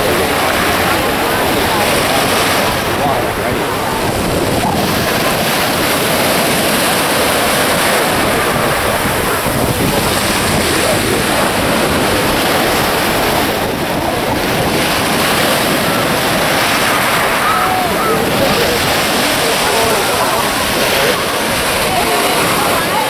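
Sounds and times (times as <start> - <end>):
waves washing: 0.0 - 23.0
wind buffeting microphone: 0.0 - 23.0.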